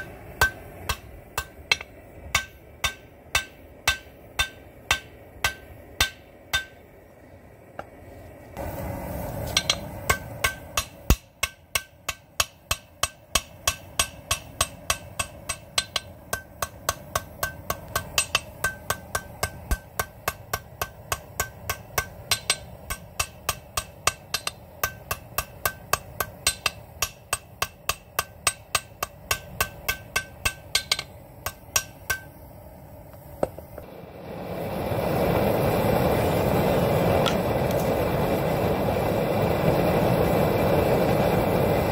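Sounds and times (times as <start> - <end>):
hammer beating metal rebar: 0.0 - 6.9, 9.5 - 32.4
steady rushing noise: 0.0 - 41.9.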